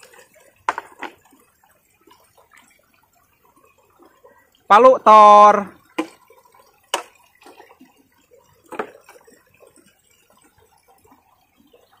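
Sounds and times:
plastic toys knocking and rustling: 0.6 - 1.2, 8.7 - 9.2.

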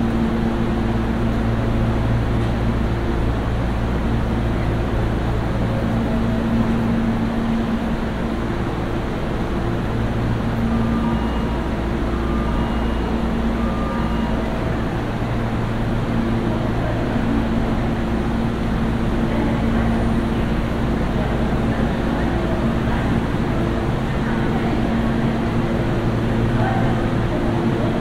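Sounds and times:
electric train humming: 0.0 - 28.0
faint steady tones: 9.5 - 28.0.

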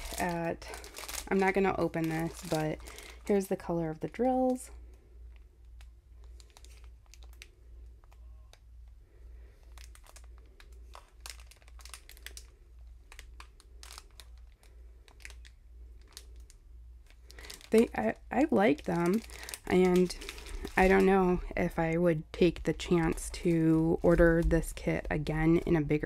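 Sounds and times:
plastic packaging crinkling: 0.0 - 26.0.

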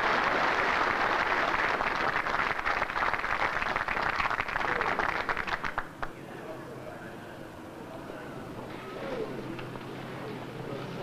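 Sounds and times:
crowd applauding: 0.0 - 6.1.

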